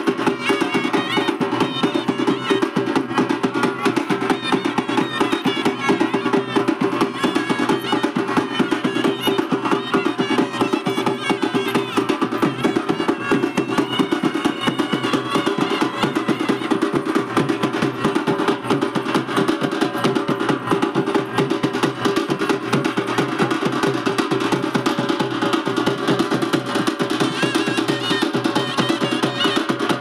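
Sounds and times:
drums playing dance beat: 0.0s - 30.0s.

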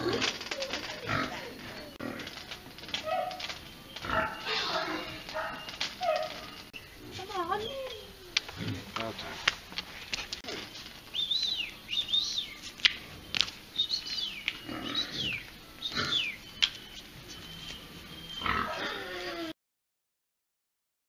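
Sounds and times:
high animal calls: 0.0s - 9.4s, 10.4s - 16.5s, 17.3s - 19.6s
lower falling animal call: 2.9s - 6.6s, 18.4s - 19.6s.

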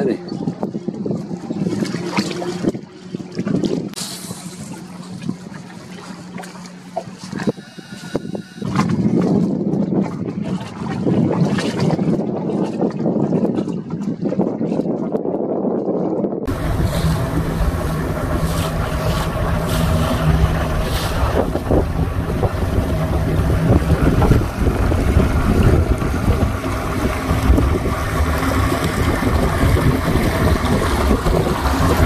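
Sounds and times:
water rushing: 0.0s - 9.6s, 16.5s - 32.0s
outboard motor running: 0.0s - 32.0s
wind buffeting microphone: 0.0s - 32.0s.

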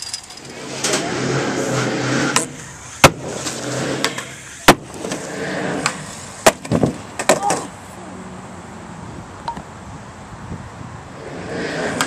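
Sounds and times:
skateboard wheels rolling on concrete: 0.0s - 12.0s
skateboard striking smacks: 2.4s - 5.2s, 5.8s - 7.8s.

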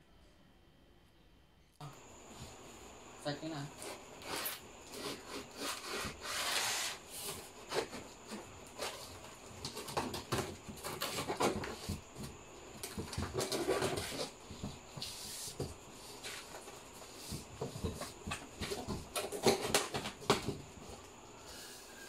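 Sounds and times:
cardboard flaps rustling: 6.0s - 21.0s.

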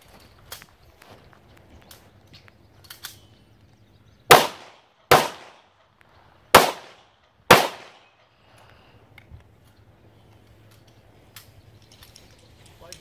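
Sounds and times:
handgun shots with echo: 4.3s - 5.7s, 6.5s - 8.1s.

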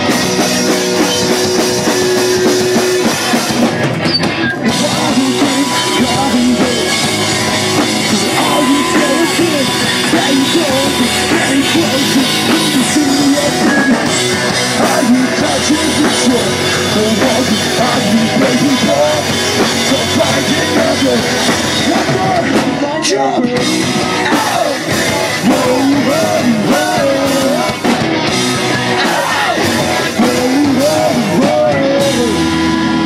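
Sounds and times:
drum kit: 0.0s - 33.0s
electric guitars: 0.0s - 33.0s
person shouting vocals: 4.8s - 7.0s, 8.1s - 13.7s.

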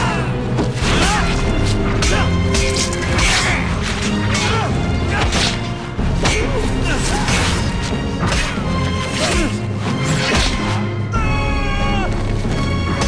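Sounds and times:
film score music: 0.0s - 13.0s.

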